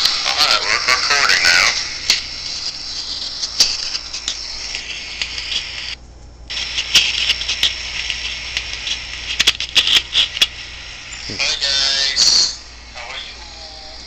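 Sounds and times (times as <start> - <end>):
hissing static: 0.0 - 14.0
clicks and crackles: 2.0 - 11.3.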